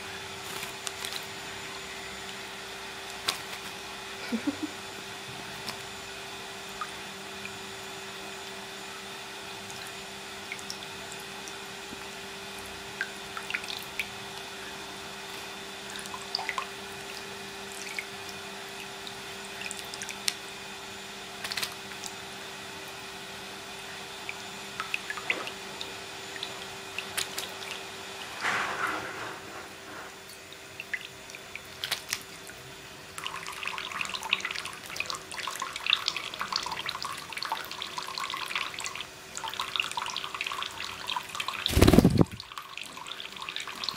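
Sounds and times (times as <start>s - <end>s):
small splashes and drips: 9.6s - 14.5s, 15.3s - 20.4s, 21.4s - 22.2s, 24.2s - 28.3s, 30.5s - 32.6s, 33.2s - 43.9s.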